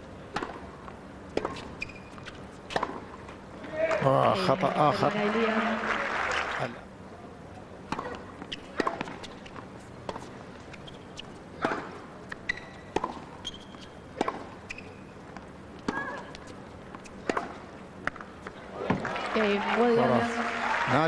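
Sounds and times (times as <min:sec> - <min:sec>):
low arena background noise: 0:00.0 - 0:21.0
tennis ball bouncing on hard court: 0:00.3 - 0:03.2, 0:07.9 - 0:19.1.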